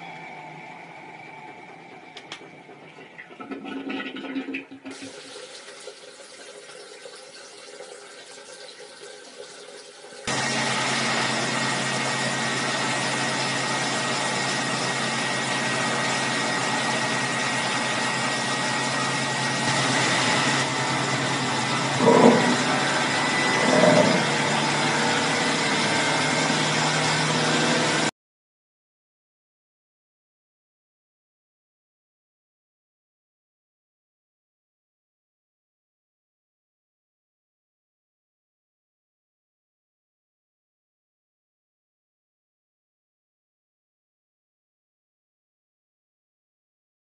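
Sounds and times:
motor hum: 0:00.0 - 0:03.9, 0:10.3 - 0:28.1
water churning in washing machine: 0:00.0 - 0:28.1.

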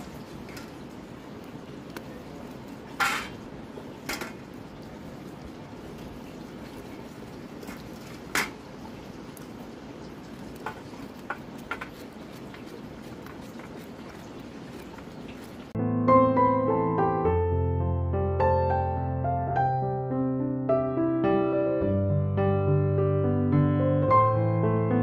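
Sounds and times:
knife scraping a steel plate: 0:03.0 - 0:03.4.

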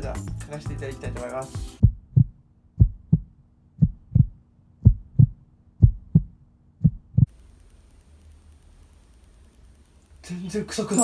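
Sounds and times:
heartbeat thumps: 0:01.8 - 0:07.3.

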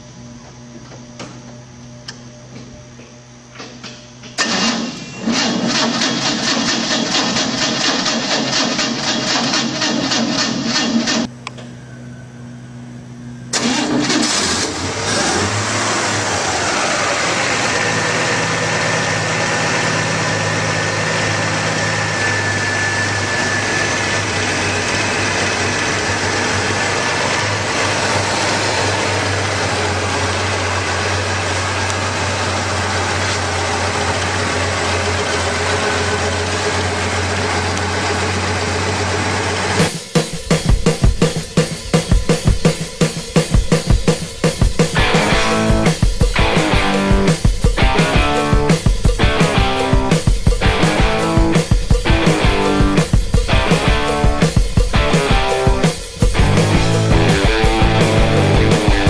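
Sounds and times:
faint high whine: 0:11.3 - 0:13.6, 0:16.9 - 0:28.0
car engine idling: 0:13.6 - 0:41.8, 0:44.2 - 0:59.0.

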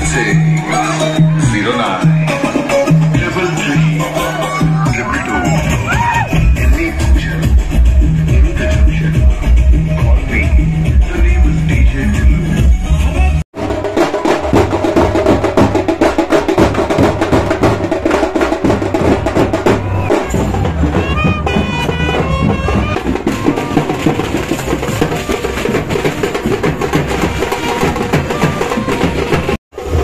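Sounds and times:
drum beat: 0:00.0 - 0:30.0
brass band playing: 0:19.0 - 0:30.0.

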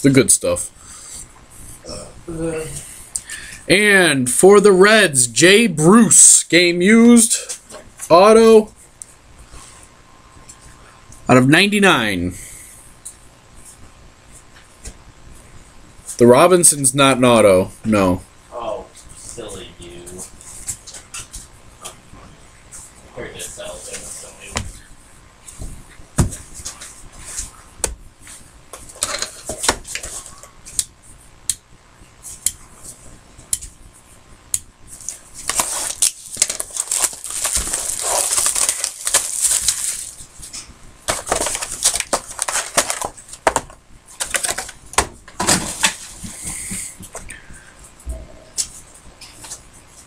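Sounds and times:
packaging rustling: 0:35.0 - 0:40.5, 0:41.1 - 0:46.2.

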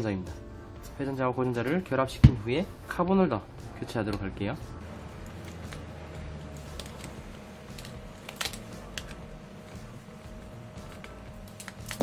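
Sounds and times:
steady low hum: 0:04.6 - 0:12.0.

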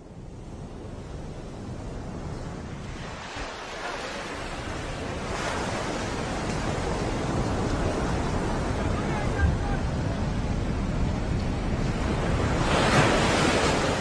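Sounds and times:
wind noise on microphone: 0:00.0 - 0:14.0.

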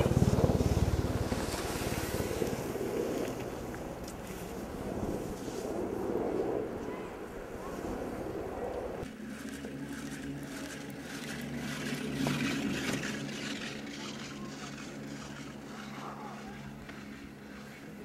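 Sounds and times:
wind and snow noise skiing: 0:00.0 - 0:09.1
chairlift mechanical hum: 0:00.0 - 0:18.0.

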